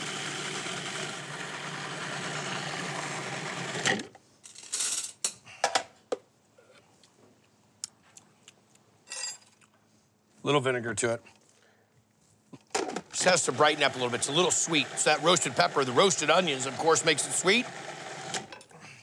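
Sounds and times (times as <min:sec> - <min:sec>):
food processor motor running: 0:00.0 - 0:04.1, 0:13.2 - 0:18.5.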